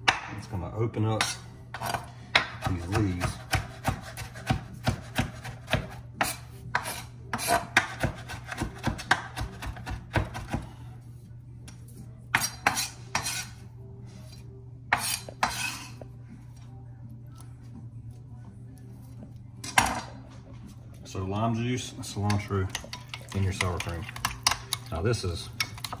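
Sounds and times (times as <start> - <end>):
knife chopping on wooden board: 2.3 - 10.7.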